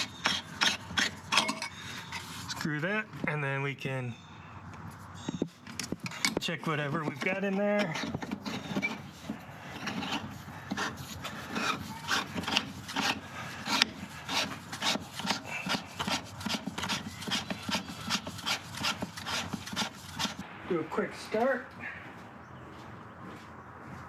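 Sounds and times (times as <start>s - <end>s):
hand rubbing rubber hoses: 0.0s - 2.8s, 4.9s - 20.4s.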